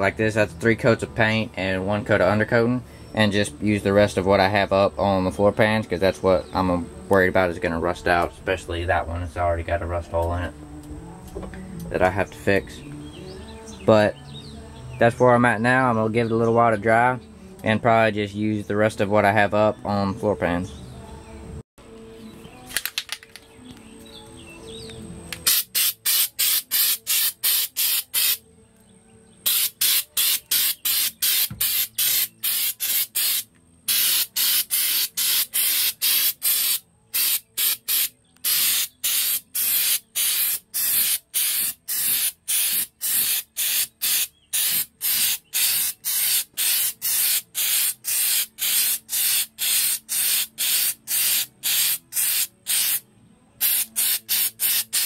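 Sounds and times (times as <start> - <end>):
aerosol can spraying in spurts: 25.3 - 28.4, 29.4 - 53.0, 53.6 - 55.0.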